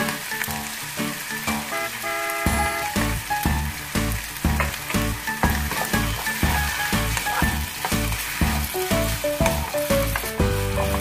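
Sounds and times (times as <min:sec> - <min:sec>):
chicken wings sizzling in a pan: 0:00.0 - 0:11.0
background music with steady beat: 0:02.5 - 0:11.0
wooden spatula stirring: 0:04.1 - 0:11.0.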